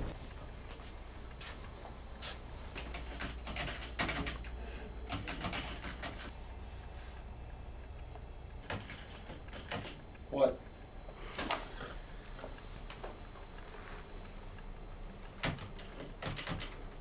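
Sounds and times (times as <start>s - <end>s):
computer keyboard typing: 2.8s - 6.4s, 8.6s - 10.2s, 14.6s - 17.0s.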